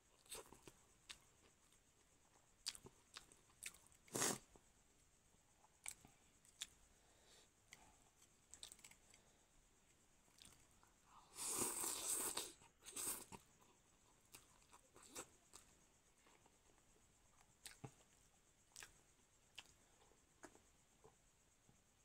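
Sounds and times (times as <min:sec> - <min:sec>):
chewing clicks: 0:00.3 - 0:01.8, 0:02.6 - 0:04.0, 0:05.8 - 0:06.8, 0:07.7 - 0:09.2, 0:10.3 - 0:10.8, 0:17.4 - 0:19.8.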